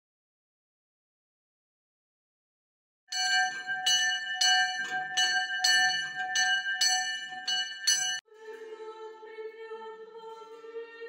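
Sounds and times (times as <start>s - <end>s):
church bell ringing: 3.1s - 8.2s.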